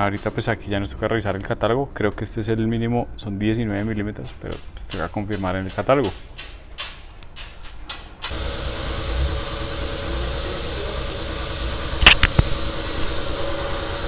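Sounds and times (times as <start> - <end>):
mechanical hum with hiss: 7.4 - 14.0.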